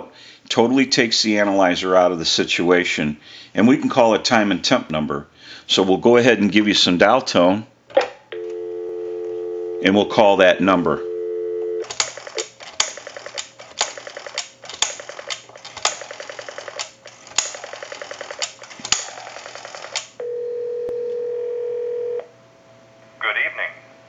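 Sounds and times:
telephone ringback tone: 0:08.4 - 0:09.9, 0:11.0 - 0:11.9, 0:19.4 - 0:22.3
rotary dial pulse clicks: 0:11.8 - 0:20.2.

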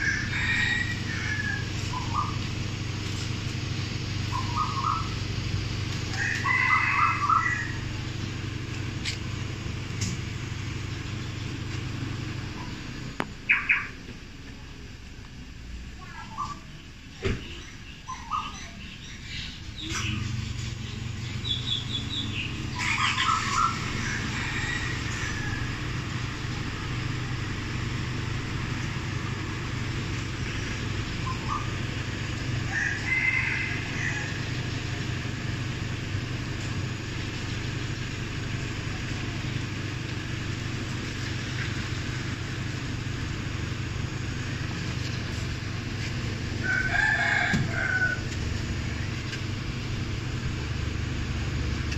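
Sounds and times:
rooster crowing: 0:00.0 - 0:02.3, 0:06.1 - 0:07.9, 0:22.7 - 0:26.0, 0:32.6 - 0:34.5, 0:46.6 - 0:48.4
car engine idling: 0:00.0 - 0:51.9
bird calls: 0:00.4 - 0:02.4, 0:04.3 - 0:05.2, 0:13.4 - 0:14.0, 0:16.0 - 0:25.5, 0:30.5 - 0:31.8.

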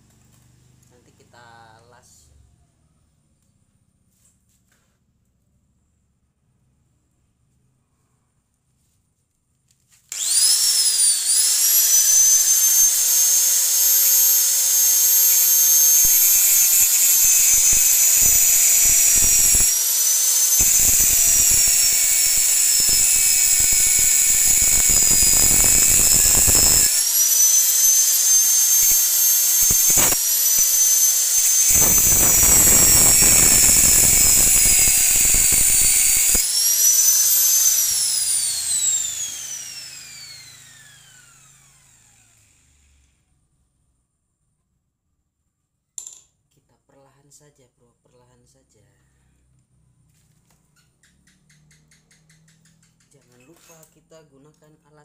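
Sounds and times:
angle grinder whining and grinding: 0:10.1 - 0:43.3.

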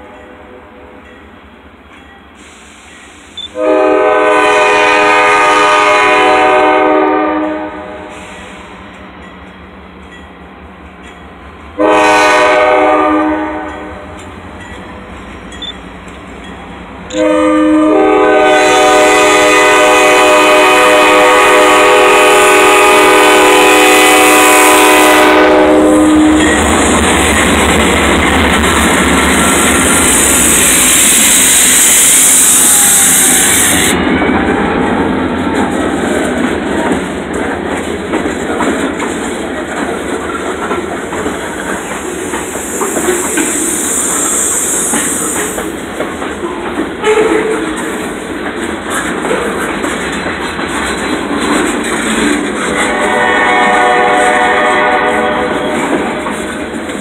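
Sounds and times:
train wheels on rails: 0:01.0 - 0:57.0
locomotive air horn blasts: 0:03.4 - 0:08.4, 0:11.8 - 0:14.2, 0:17.1 - 0:26.5, 0:47.0 - 0:47.6, 0:52.6 - 0:55.9.

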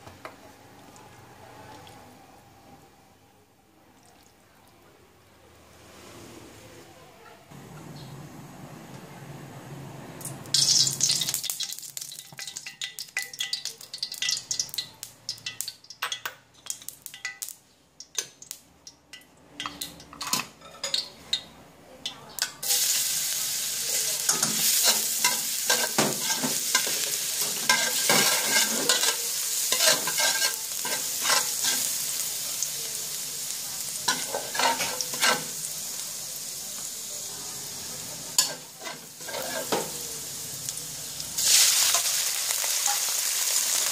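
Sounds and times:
garlic sizzling in oil: 0:10.5 - 0:15.8, 0:22.4 - 0:43.9
scraping strokes in wok: 0:22.6 - 0:32.1, 0:38.4 - 0:39.8
oil hissing in hot wok: 0:22.6 - 0:38.4, 0:39.0 - 0:43.9.

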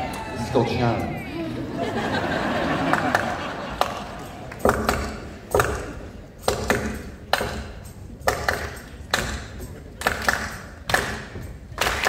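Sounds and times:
sharp percussive knocks: 0:03.8 - 0:12.0.

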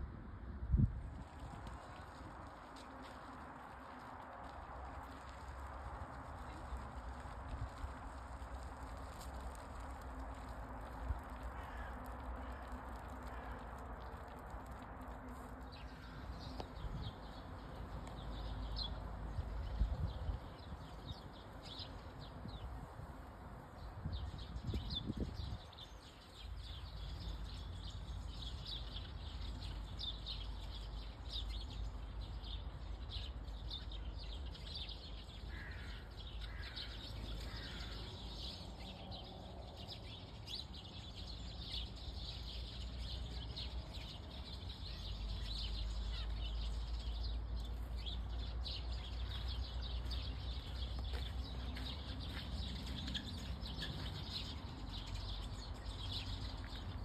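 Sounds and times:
songbirds chirping: 0:01.2 - 0:57.0.

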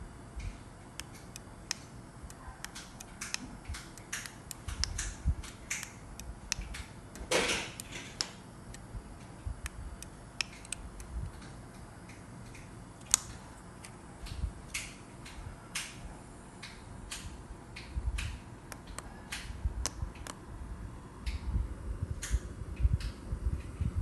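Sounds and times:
remote control buttons clicking: 0:00.4 - 0:06.9, 0:09.6 - 0:11.1, 0:12.1 - 0:16.0.

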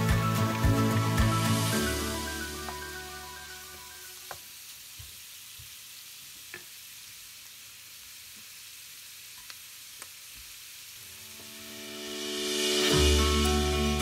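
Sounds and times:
background music: 0:00.0 - 0:04.2, 0:11.2 - 0:14.0
food sizzling in a wok: 0:00.0 - 0:14.0.

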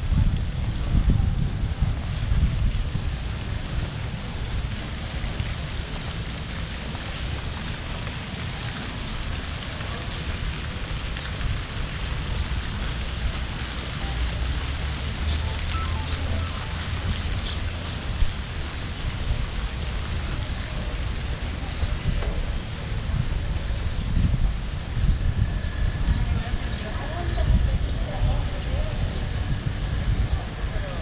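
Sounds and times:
wind on microphone: 0:00.0 - 0:05.6, 0:08.6 - 0:31.0
street ambience hiss: 0:00.0 - 0:31.0
brief high chirps: 0:15.4 - 0:16.8.

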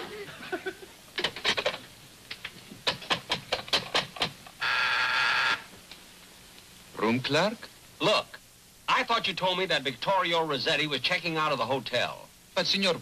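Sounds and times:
buzzing ring tone: 0:04.6 - 0:05.7.

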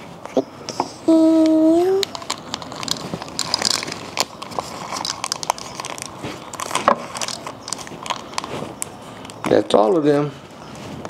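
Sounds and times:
small plastic pieces clicking: 0:01.4 - 0:08.5
plastic packet crinkling: 0:01.4 - 0:09.7.

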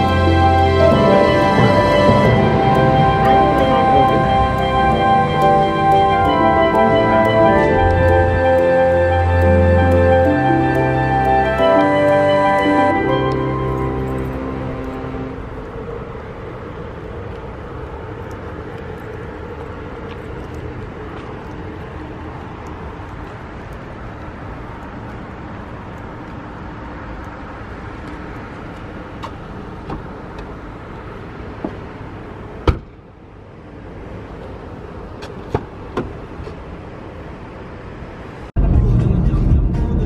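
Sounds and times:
traffic rumble: 0:00.0 - 0:40.0
car door opening: 0:32.6 - 0:33.0.

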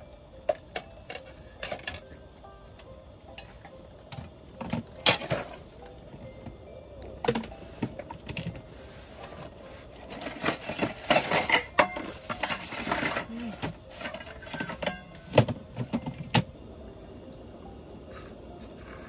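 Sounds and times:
cooking pot and utensils clinking: 0:03.4 - 0:05.6, 0:10.0 - 0:16.4.

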